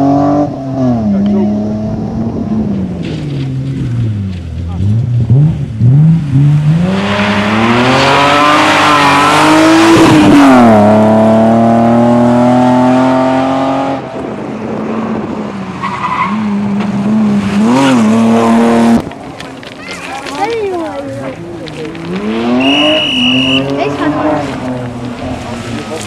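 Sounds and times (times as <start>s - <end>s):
car engine accelerating hard: 0.0s - 19.7s, 20.3s - 26.0s
gravel hissing from tyres: 19.0s - 26.0s.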